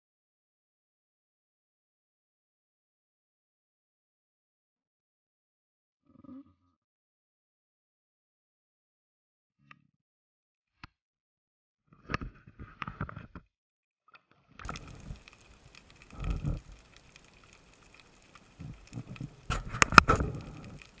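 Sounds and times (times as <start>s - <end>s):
underwater knocks and clicks: 14.6s - 21.0s.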